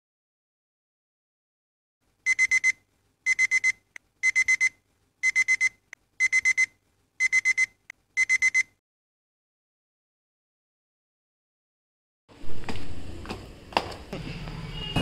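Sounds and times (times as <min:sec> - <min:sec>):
phone alarm high beeps: 0:02.3 - 0:08.8.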